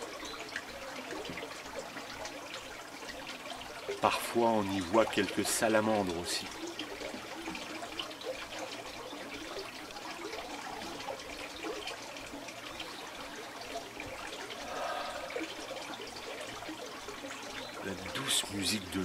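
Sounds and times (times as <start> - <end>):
water trickling through stone channels: 0.0 - 19.0.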